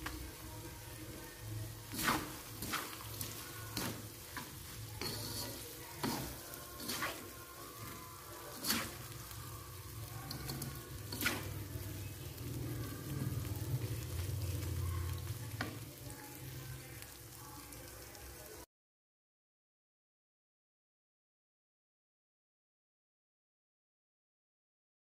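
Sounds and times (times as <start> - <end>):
spatula scraping a wok: 0.0 - 15.8
food sizzling in a wok: 0.0 - 18.7.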